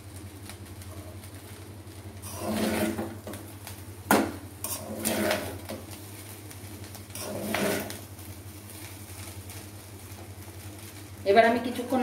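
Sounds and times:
spatula scraping rice in pan: 0:02.2 - 0:03.4, 0:04.6 - 0:05.8, 0:07.1 - 0:08.1.

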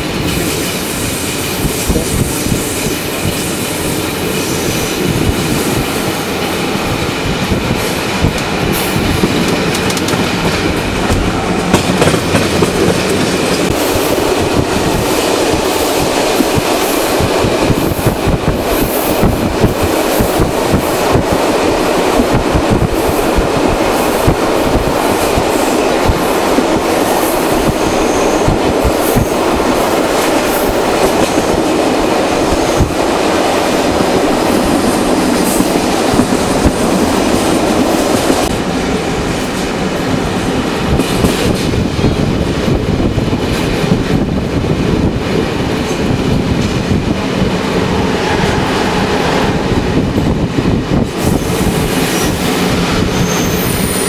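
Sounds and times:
train wheels rumbling on rails: 0:00.0 - 0:54.0
knocks and clicks over track: 0:07.5 - 0:13.8.

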